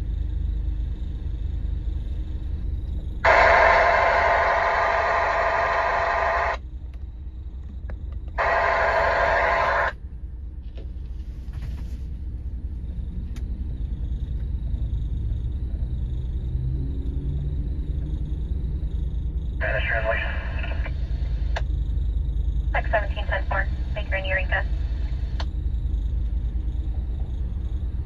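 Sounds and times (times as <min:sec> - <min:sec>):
steady low rumble: 0:00.0 - 0:28.0
radio static hiss bursts: 0:03.2 - 0:06.6, 0:08.4 - 0:10.0, 0:19.6 - 0:21.1, 0:22.8 - 0:24.8.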